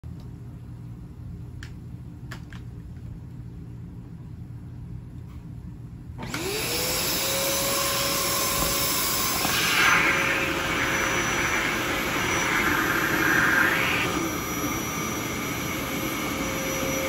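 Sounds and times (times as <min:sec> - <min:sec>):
vacuum cleaner motor whine: 0:06.2 - 0:17.0.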